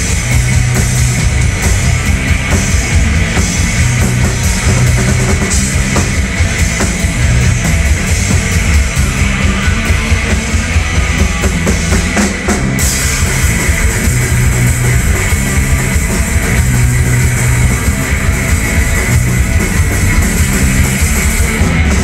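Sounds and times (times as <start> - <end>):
bass guitar: 0.0 - 22.0
drum kit: 0.0 - 22.0.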